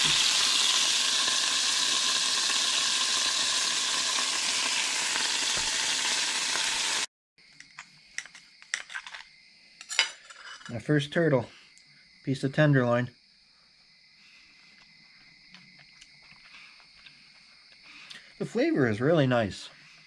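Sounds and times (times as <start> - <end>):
meat sizzling in oil: 0.0 - 7.1.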